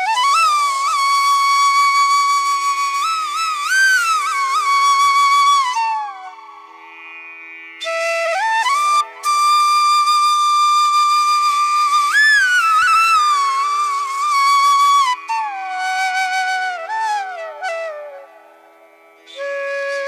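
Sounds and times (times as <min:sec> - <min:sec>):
solo flute slow melody: 0:00.0 - 0:06.9, 0:07.8 - 0:20.0.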